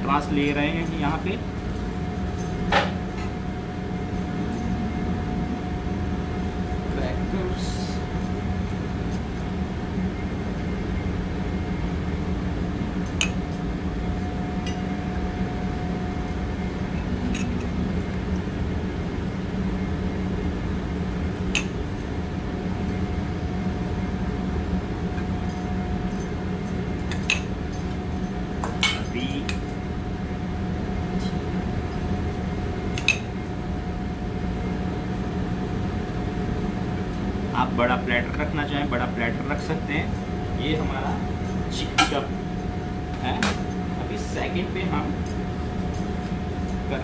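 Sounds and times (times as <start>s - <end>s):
kitchen machinery hum: 0.0s - 47.0s
utensils clinking on plate and bowl: 28.6s - 29.7s.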